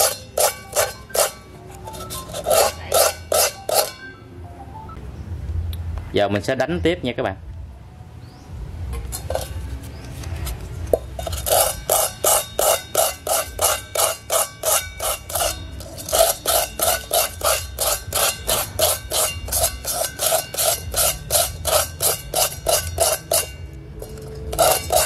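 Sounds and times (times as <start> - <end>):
sandpaper scraping metal pot: 0.0 - 4.0, 9.1 - 25.0.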